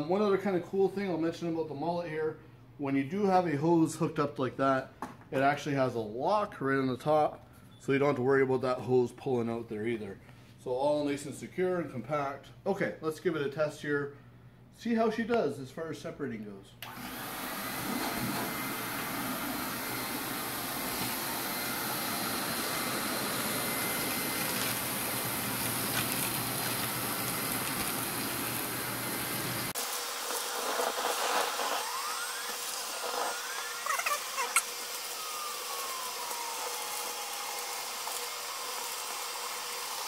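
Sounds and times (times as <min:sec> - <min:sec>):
dust extractor running: 0:16.8 - 0:40.0
high hiss: 0:16.9 - 0:39.3.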